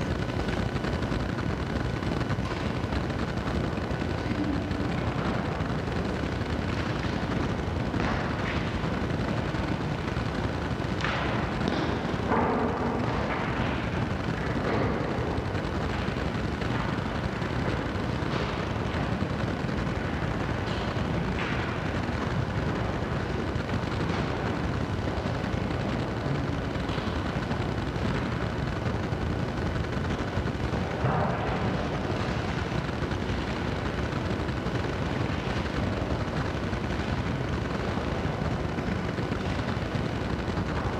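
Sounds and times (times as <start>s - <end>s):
low rumbling noise: 0.0s - 40.9s.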